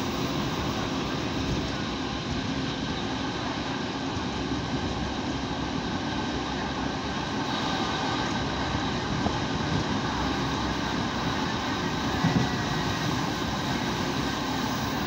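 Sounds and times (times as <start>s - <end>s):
railcar engine drone: 0.0s - 15.0s.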